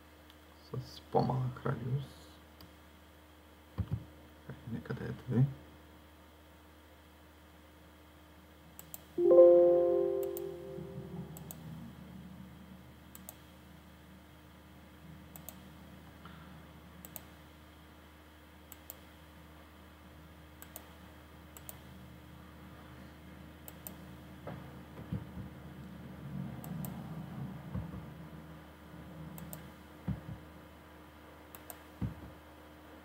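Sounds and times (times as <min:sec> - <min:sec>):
low steady hum: 0:00.0 - 0:33.0
computer mouse clicking: 0:08.8 - 0:09.1, 0:13.1 - 0:13.5, 0:15.3 - 0:15.7, 0:17.0 - 0:17.3, 0:18.7 - 0:19.1, 0:20.6 - 0:21.9, 0:23.6 - 0:24.0, 0:26.6 - 0:27.0, 0:29.4 - 0:29.7, 0:31.5 - 0:32.0
chime-like chord: 0:09.2 - 0:11.4.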